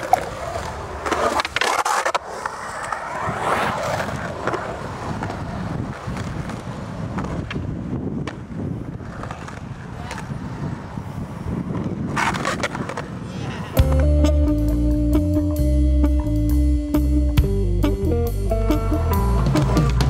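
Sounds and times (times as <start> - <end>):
skateboard clacks: 0.0 - 11.0, 11.7 - 14.2, 19.4 - 20.0
skateboard wheels rolling on concrete: 0.0 - 20.0.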